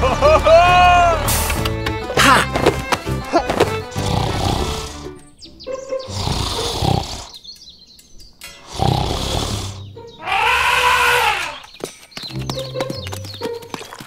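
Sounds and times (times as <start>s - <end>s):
elephant roars: 4.0s - 5.0s, 8.7s - 11.6s
elephant trumpet call: 10.2s - 11.6s.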